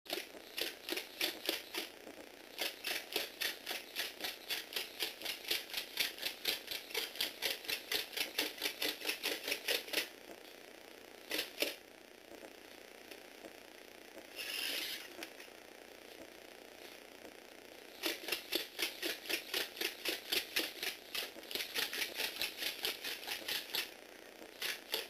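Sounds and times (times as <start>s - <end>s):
plastic robot clacking on wooden floor: 18.0s - 23.9s.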